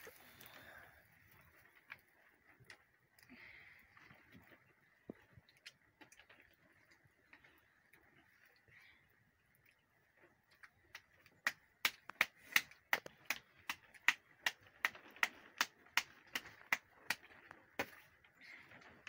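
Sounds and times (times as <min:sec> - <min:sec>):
hands slapping dough: 0:10.9 - 0:18.1.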